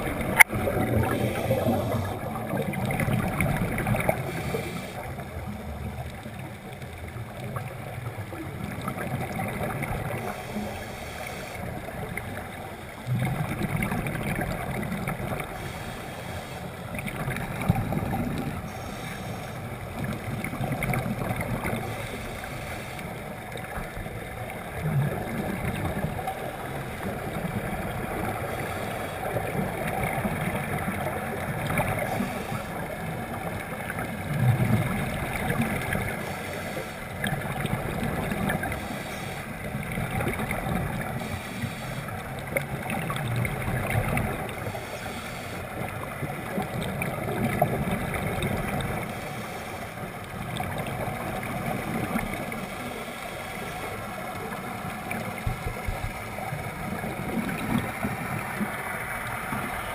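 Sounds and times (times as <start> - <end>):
regulator exhalation bubbling: 0.0 - 4.7
underwater water rush: 0.0 - 59.9.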